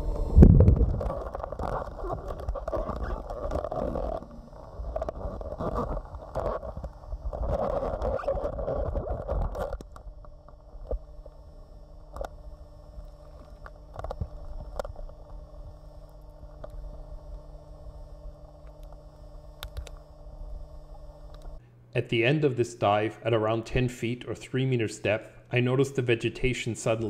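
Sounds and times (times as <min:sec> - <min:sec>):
underwater bubbling rumble: 0:00.0 - 0:06.4
steady low hum: 0:00.0 - 0:27.0.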